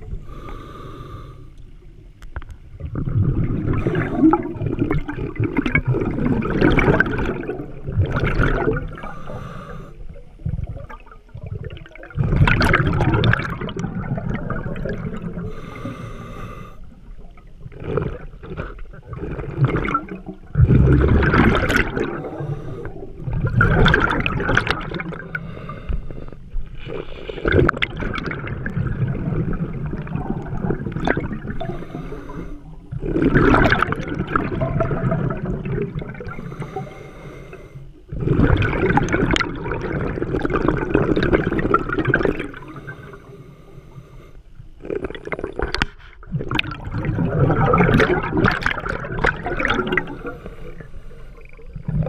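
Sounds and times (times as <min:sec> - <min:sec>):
underwater exhaled bubbles gurgling: 0:00.0 - 0:52.0
regulator inhaling: 0:00.2 - 0:01.6, 0:09.0 - 0:10.0, 0:15.4 - 0:17.0, 0:22.0 - 0:23.2, 0:25.2 - 0:27.5, 0:31.6 - 0:32.8, 0:36.4 - 0:38.0, 0:42.6 - 0:44.5, 0:50.0 - 0:51.7.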